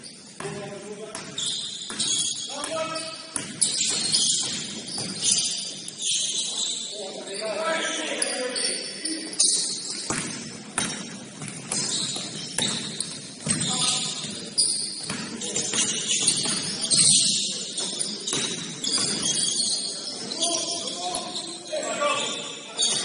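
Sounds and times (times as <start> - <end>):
basketball bouncing on court: 0.4 - 5.5, 9.9 - 17.4, 18.3 - 19.5.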